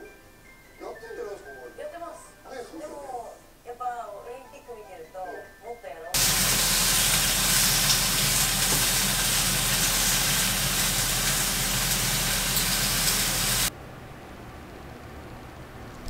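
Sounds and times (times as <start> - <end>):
food sizzling in a frying pan: 6.2 - 13.7.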